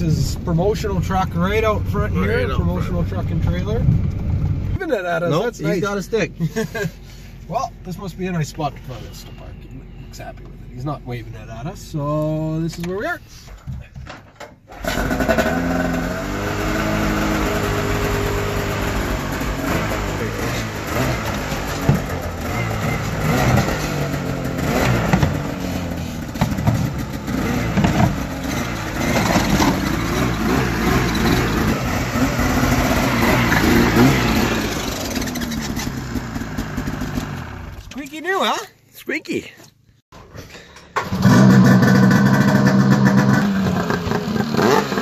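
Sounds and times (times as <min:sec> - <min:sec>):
snowmobile engine revving: 0:14.8 - 0:37.8, 0:41.0 - 0:45.0.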